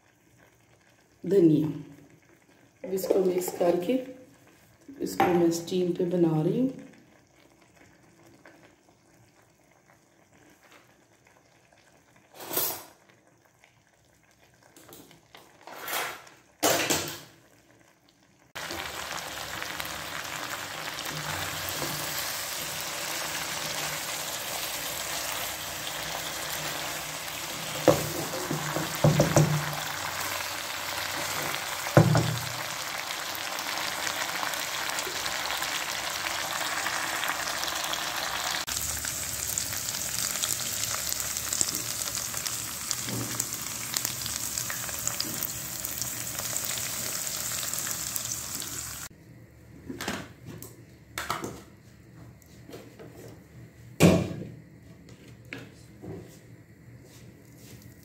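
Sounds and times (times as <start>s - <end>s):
chicken sizzling in a pan: 6.5s - 15.2s, 16.2s - 49.1s
knocks in pan: 16.6s - 17.3s, 27.8s - 29.9s, 31.4s - 32.6s.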